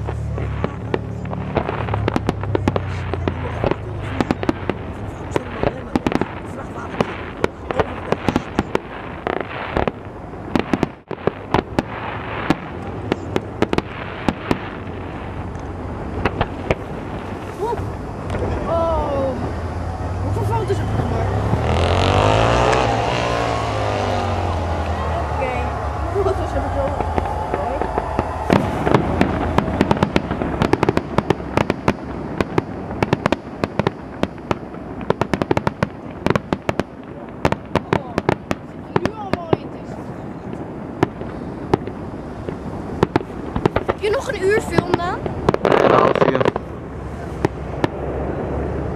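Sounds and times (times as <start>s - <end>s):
fireworks crackle: 0.0s - 48.9s
firework shells bursting: 21.5s - 39.6s, 40.4s - 48.2s.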